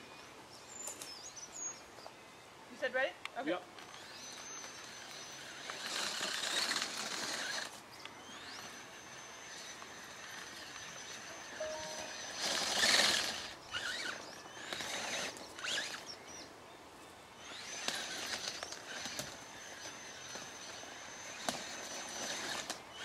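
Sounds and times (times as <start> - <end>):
electric motor whine: 3.8 - 16.4, 17.4 - 23.0.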